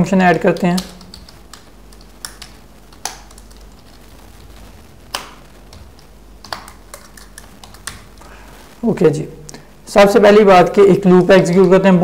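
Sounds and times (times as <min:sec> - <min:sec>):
low hum: 0:00.0 - 0:10.0
keyboard keys clicking: 0:00.3 - 0:03.8.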